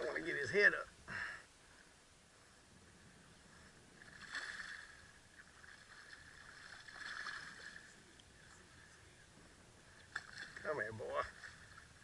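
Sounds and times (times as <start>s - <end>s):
fish splashing in water: 4.0s - 7.9s.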